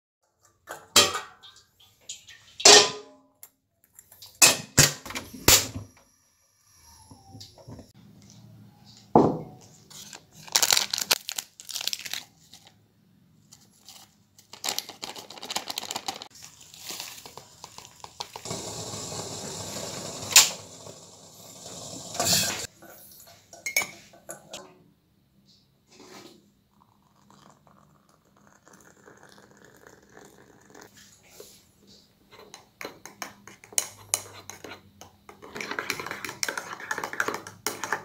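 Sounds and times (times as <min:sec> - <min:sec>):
sachet tearing open: 0:10.1 - 0:12.7, 0:13.7 - 0:17.8
plastic sachet crinkling: 0:10.1 - 0:12.8, 0:13.6 - 0:18.3
powder pouring into mug: 0:14.6 - 0:22.6, 0:26.7 - 0:30.9.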